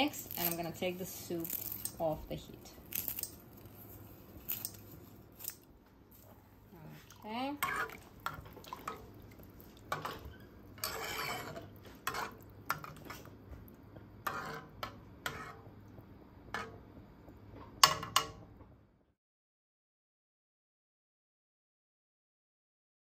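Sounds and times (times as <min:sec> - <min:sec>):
metal spoon scraping pot: 0:00.0 - 0:02.1, 0:07.6 - 0:09.1, 0:09.9 - 0:13.1, 0:14.2 - 0:15.7.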